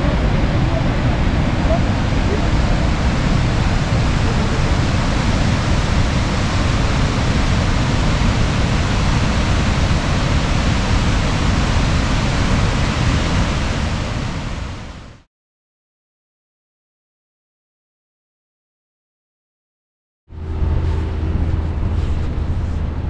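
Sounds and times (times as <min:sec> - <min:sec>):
waterfall rushing: 0:00.0 - 0:15.2.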